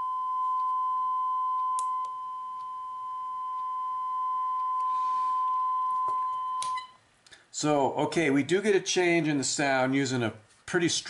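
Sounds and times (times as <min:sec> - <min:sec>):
sine-wave test tone: 0:00.0 - 0:07.0.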